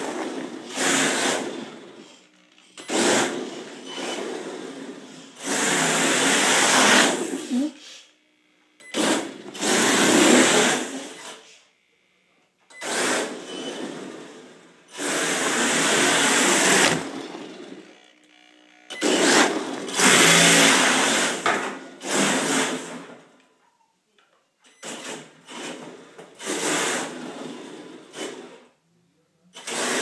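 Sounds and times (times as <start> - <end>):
electric motor whining: 15.0 - 21.4.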